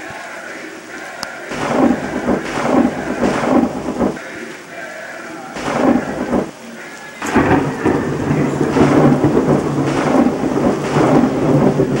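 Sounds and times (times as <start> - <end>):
thunder crack and rumble: 1.5 - 4.5, 5.6 - 12.0.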